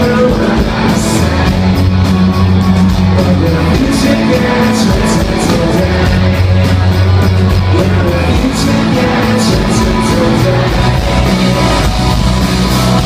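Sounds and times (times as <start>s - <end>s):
rock band playing live: 0.0s - 13.0s.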